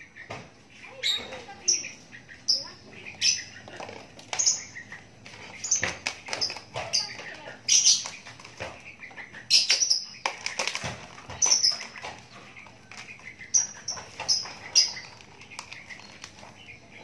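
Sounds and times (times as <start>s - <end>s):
bird chirping: 0.0s - 17.0s.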